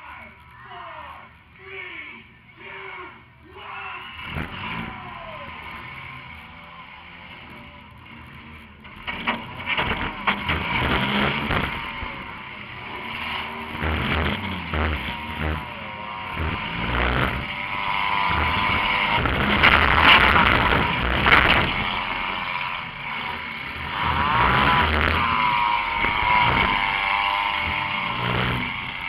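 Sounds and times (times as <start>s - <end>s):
car engine running: 3.7s - 29.0s
knocks and rattles: 8.8s - 12.4s, 18.3s - 22.4s.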